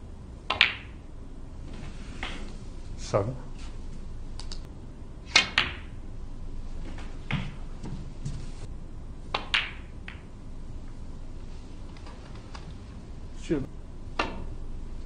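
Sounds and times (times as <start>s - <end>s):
snooker balls clicking: 0.4s - 1.0s, 2.1s - 2.6s, 5.3s - 6.0s, 6.8s - 11.0s, 11.8s - 13.0s, 14.1s - 14.6s.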